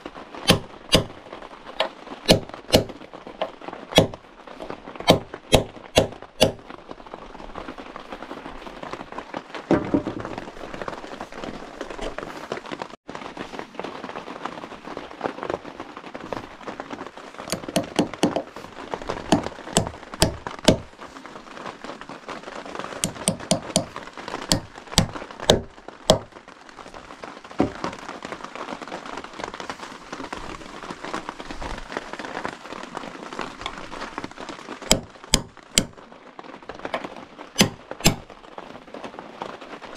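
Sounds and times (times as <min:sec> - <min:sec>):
rain hissing: 0:00.0 - 0:39.9
hammer driving nails into wood: 0:00.5 - 0:01.1, 0:02.3 - 0:03.0, 0:04.0 - 0:04.2, 0:05.1 - 0:06.6, 0:17.5 - 0:18.5, 0:19.3 - 0:20.9, 0:23.0 - 0:23.9, 0:24.5 - 0:26.2, 0:34.9 - 0:36.0, 0:37.6 - 0:38.2.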